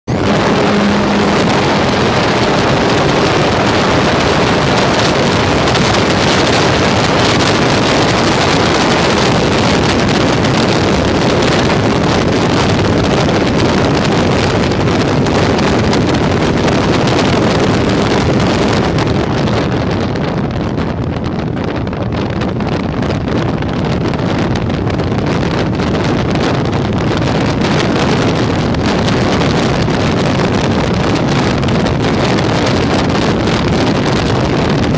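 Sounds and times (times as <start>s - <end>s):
wind buffeting microphone: 0.0s - 34.9s.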